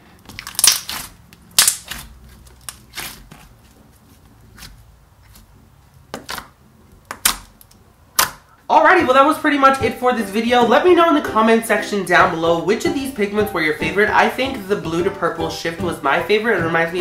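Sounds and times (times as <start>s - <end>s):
hands squishing slime: 0.2s - 7.6s.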